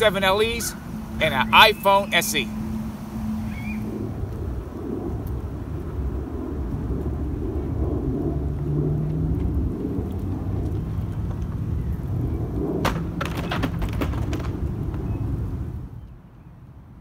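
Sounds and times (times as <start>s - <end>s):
low rumble: 2.4s - 13.0s.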